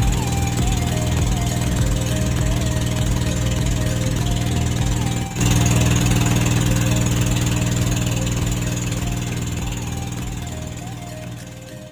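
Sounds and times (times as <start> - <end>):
boat engine running: 0.0 - 11.9.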